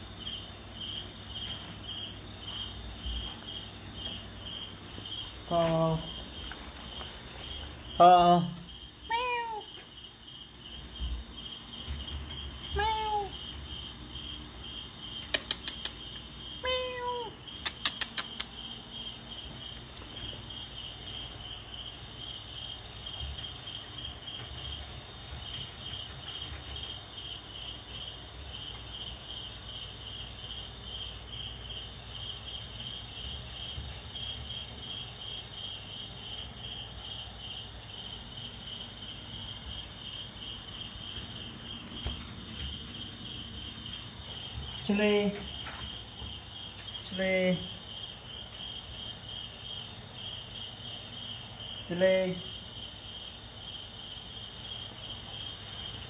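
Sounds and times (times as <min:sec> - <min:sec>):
cricket chirping: 0:00.0 - 0:56.0
kitten meowing: 0:09.1 - 0:09.8, 0:12.7 - 0:13.4, 0:16.6 - 0:17.4
sharp clicks: 0:15.2 - 0:16.4, 0:17.6 - 0:18.6.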